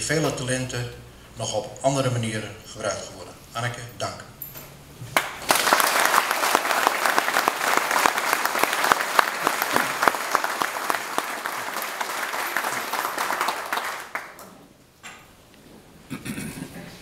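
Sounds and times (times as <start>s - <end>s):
hands clapping close by: 5.1s - 14.5s
audience applauding: 5.2s - 14.4s.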